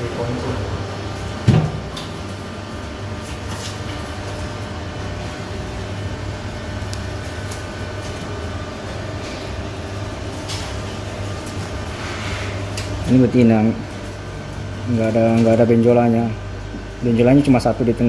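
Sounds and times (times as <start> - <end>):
machinery hum: 0.0 - 18.0.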